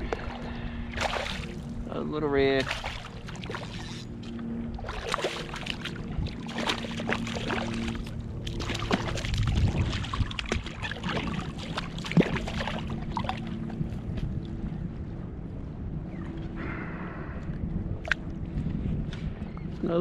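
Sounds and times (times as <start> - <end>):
water splashing: 0.0 - 1.8, 2.5 - 13.8
steady low hum: 0.0 - 20.0.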